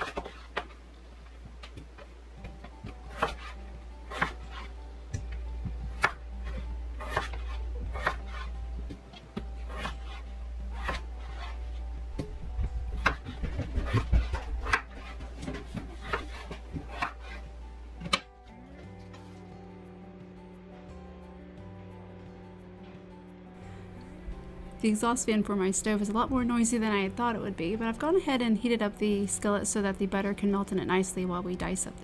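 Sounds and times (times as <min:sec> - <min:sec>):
low steady hum: 0:00.0 - 0:32.0
knife chopping on wooden board: 0:02.4 - 0:03.5, 0:04.1 - 0:04.6, 0:05.2 - 0:08.4, 0:09.4 - 0:10.2, 0:10.8 - 0:11.0, 0:12.9 - 0:17.4.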